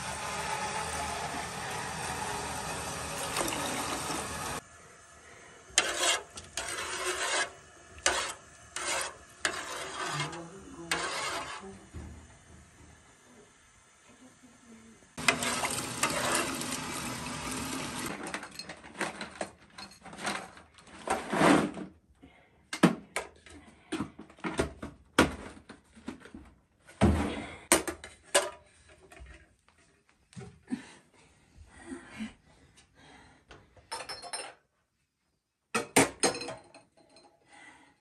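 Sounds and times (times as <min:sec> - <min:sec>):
water running: 0:00.0 - 0:05.0, 0:15.2 - 0:18.1
kitchenware clinking and knocking: 0:03.2 - 0:04.6, 0:33.9 - 0:34.6, 0:35.7 - 0:37.4.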